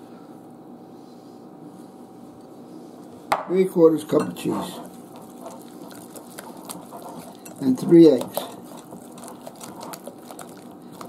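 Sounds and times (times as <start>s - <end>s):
steady background hum: 0.0s - 11.0s
whisk tapping against glass bowl: 4.2s - 11.0s.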